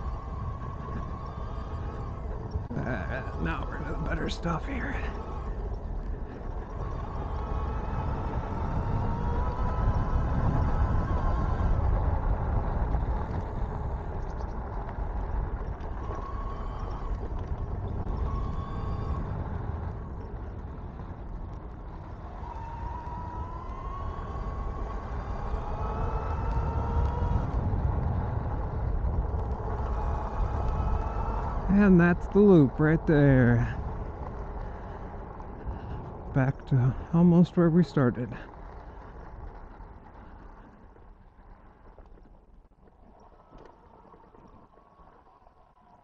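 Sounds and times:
wind and tyre rumble: 0.0 - 46.0
electric motor whine: 15.8 - 19.6, 21.9 - 31.8.

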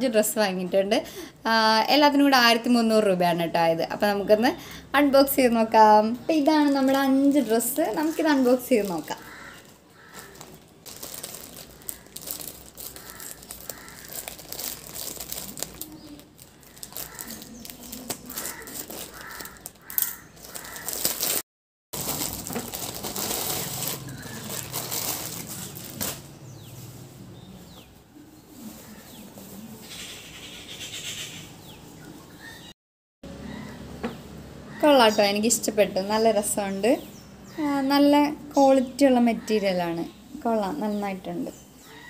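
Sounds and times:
plastic pouch crinkling and tearing: 7.3 - 21.4, 22.0 - 26.3.

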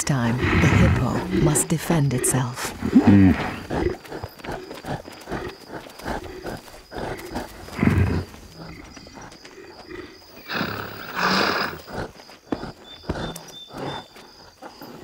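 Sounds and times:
animals growling: 0.0 - 15.0
hissing snarl: 10.4 - 12.0.

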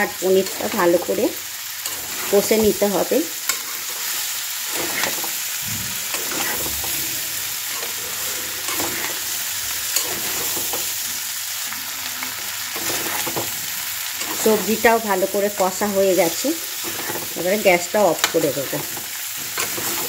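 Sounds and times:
food sizzling in oil: 0.0 - 20.0
utensil scraping and knocking pan: 4.7 - 9.3, 12.8 - 13.6.

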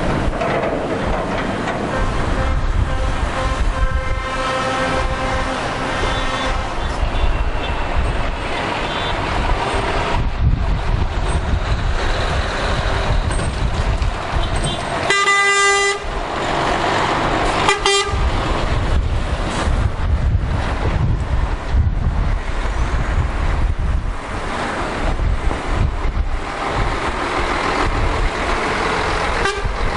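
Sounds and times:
heavy trucks driving past: 0.0 - 29.9
truck horn blast: 1.8 - 8.1, 8.8 - 9.2, 14.4 - 16.1, 17.5 - 18.3, 29.4 - 29.9.

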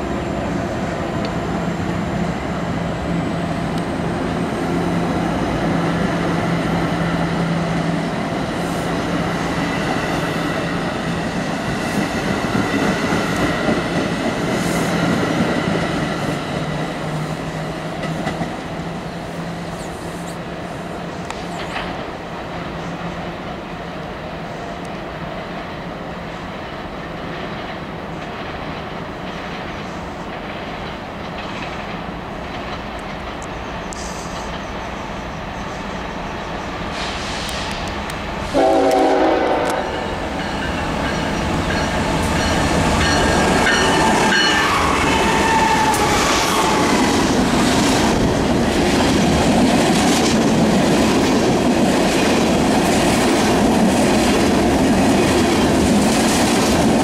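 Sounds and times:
freight train passing: 0.0 - 57.0
wheels clacking over rail joints: 26.5 - 34.9
locomotive air horn: 38.5 - 40.2.

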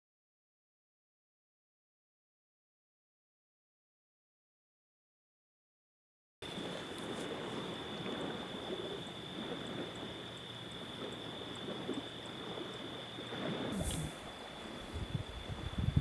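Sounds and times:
high-pitched insect trill: 6.4 - 16.0
brief hiss: 13.7 - 15.1.

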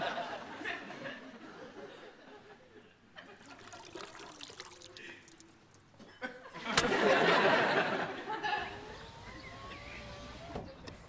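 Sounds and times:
water splashing and trickling: 3.2 - 6.2
small wet clicks: 3.4 - 6.0.

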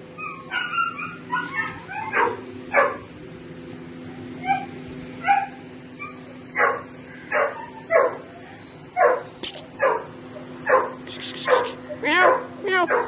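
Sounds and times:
steady low hum: 0.0 - 13.0
young dog barking: 0.5 - 3.1, 6.6 - 8.3, 9.0 - 13.0.

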